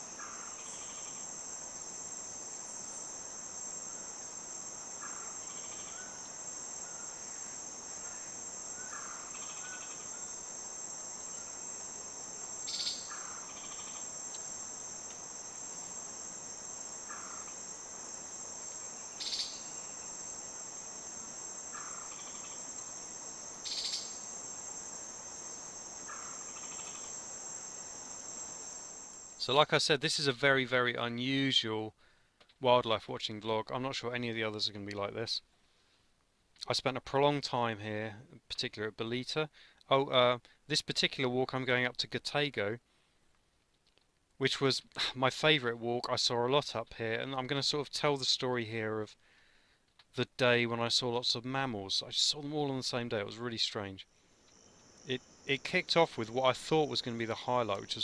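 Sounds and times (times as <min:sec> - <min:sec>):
insects droning: 0:00.0 - 0:30.3, 0:51.0 - 0:58.0.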